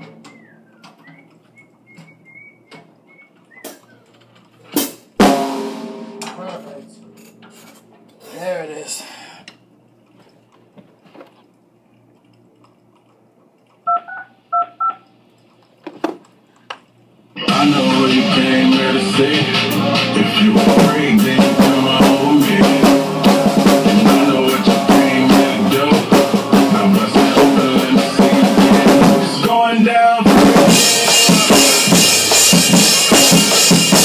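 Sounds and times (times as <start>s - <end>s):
knocks and clatter at drum kit: 0.0s - 4.0s, 4.6s - 7.8s, 20.6s - 29.4s, 30.3s - 34.0s
ringing drum hit: 5.2s - 7.7s.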